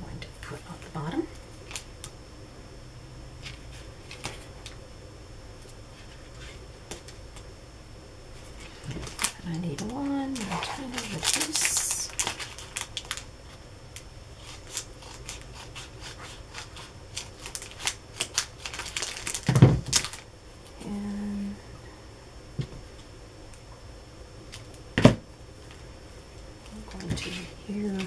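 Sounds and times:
paper rustling: 8.4 - 13.2.

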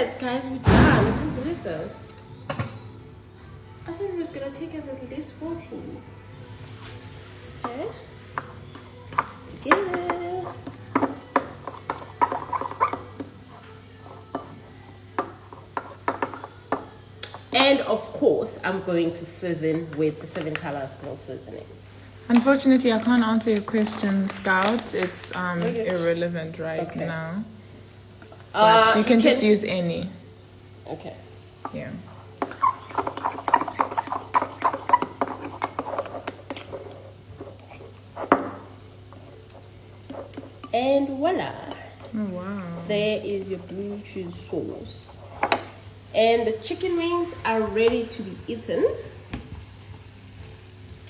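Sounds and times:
fork stirring thick sauce: 10.4 - 14.3, 32.2 - 38.4, 39.1 - 40.7.

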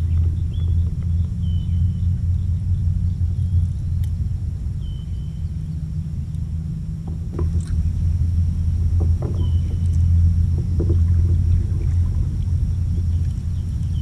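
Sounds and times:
low rumble: 0.0 - 14.0
paddle splashing in water: 7.1 - 14.0.

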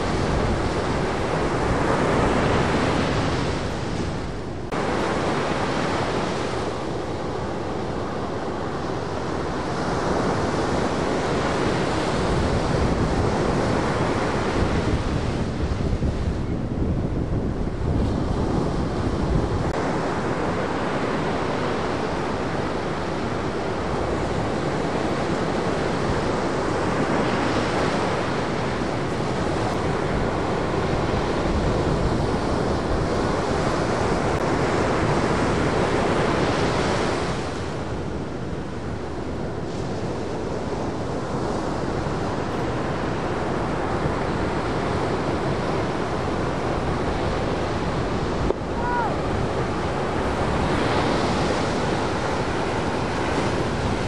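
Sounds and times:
ocean waves breaking: 0.0 - 54.0
wind buffeting microphone: 0.0 - 54.0.

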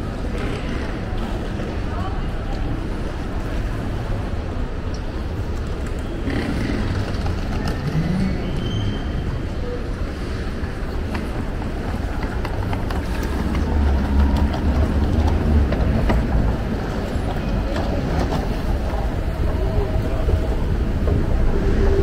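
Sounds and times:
steady low rumble: 18.2 - 22.0.

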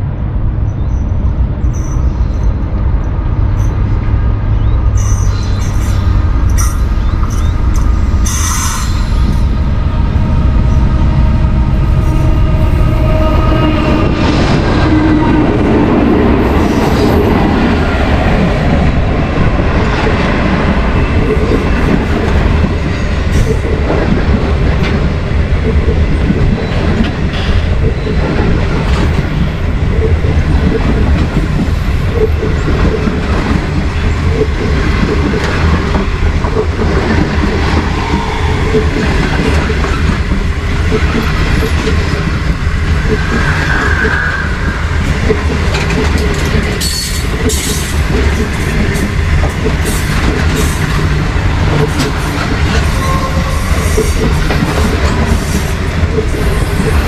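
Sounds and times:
railway wheels rumbling on rails: 0.0 - 57.0
high wheel squeal: 4.6 - 14.0, 43.2 - 45.1.

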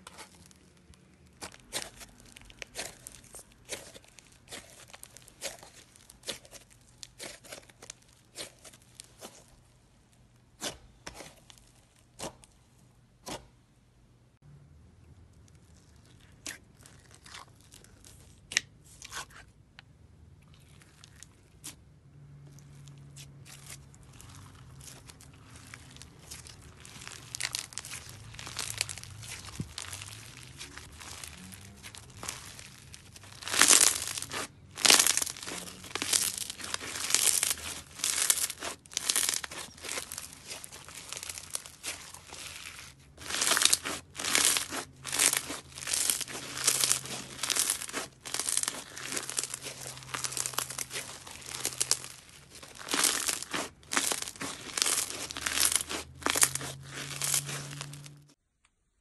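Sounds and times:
slime crackling and crinkling: 0.0 - 12.6, 15.2 - 19.5, 20.4 - 58.4.

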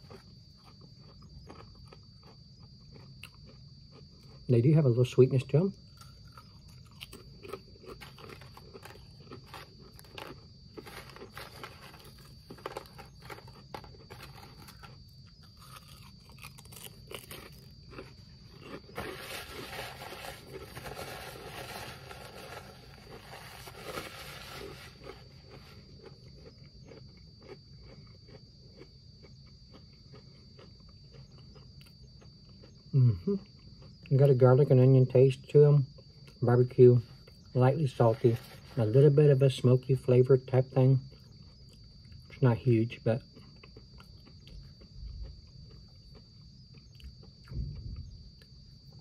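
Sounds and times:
person chewing crispy chips: 0.0 - 4.5, 5.8 - 34.3, 41.0 - 42.4, 43.2 - 47.6.

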